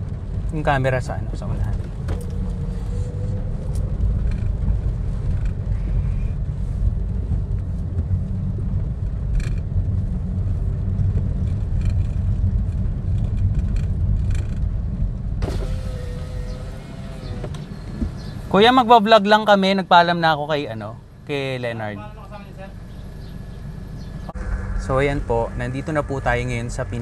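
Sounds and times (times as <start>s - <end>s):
car engine and tyres rumbling: 0.0s - 27.0s.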